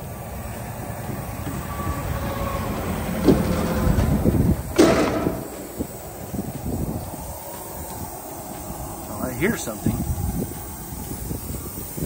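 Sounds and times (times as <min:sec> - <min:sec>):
highway traffic rushing past: 0:00.0 - 0:12.0
loud bang: 0:03.2 - 0:06.1
sharp knock: 0:04.7 - 0:06.0.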